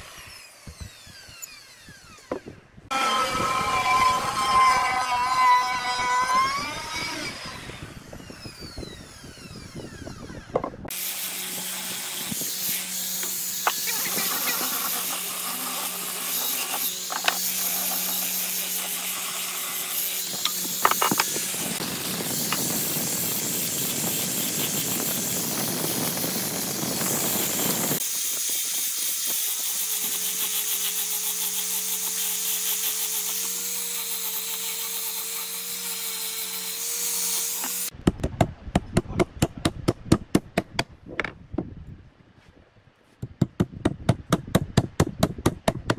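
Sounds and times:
wood router winding down: 0:00.0 - 0:12.2
angle grinder sanding wood: 0:00.0 - 0:38.0.

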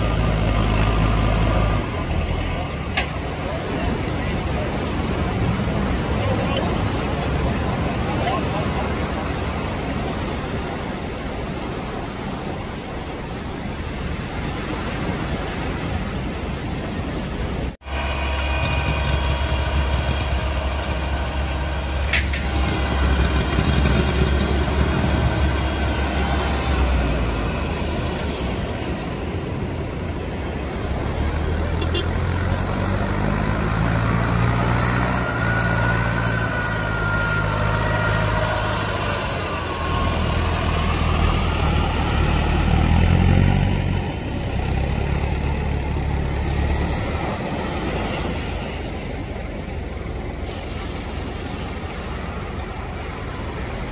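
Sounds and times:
outboard engine revving: 0:00.0 - 0:53.9
tractor engine running: 0:16.4 - 0:53.9.

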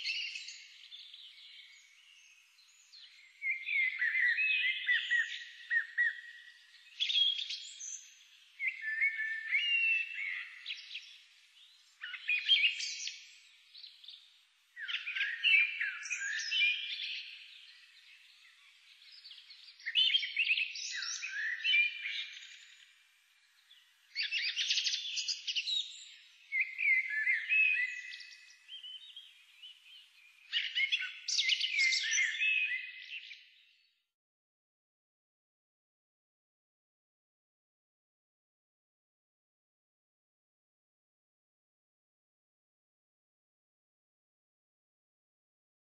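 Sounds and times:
songbirds chirping and twittering: 0:00.0 - 0:34.2.

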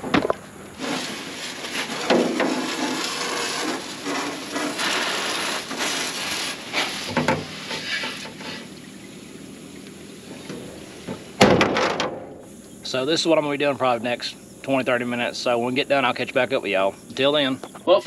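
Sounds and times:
water jet spattering on metal: 0:00.8 - 0:08.8, 0:10.2 - 0:12.3.

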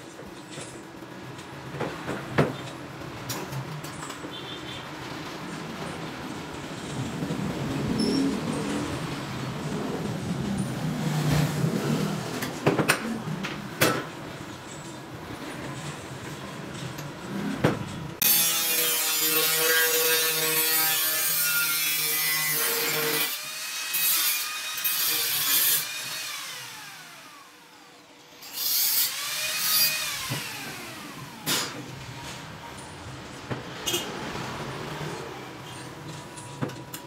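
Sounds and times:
angle grinder grinding metal: 0:18.2 - 0:27.6.

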